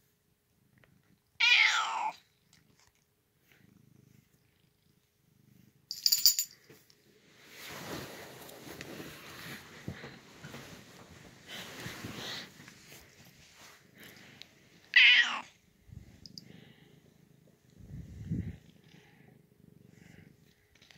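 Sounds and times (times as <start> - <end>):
cat meowing: 1.4 - 2.2, 14.9 - 15.5
cat purring: 2.2 - 5.9, 15.5 - 20.9
collar bell jingling: 5.9 - 6.7
fleece bedding rustling: 7.4 - 13.8.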